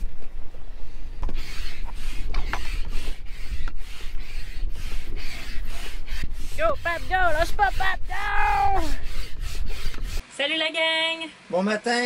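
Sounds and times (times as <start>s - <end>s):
hand pump strokes: 1.2s - 10.2s.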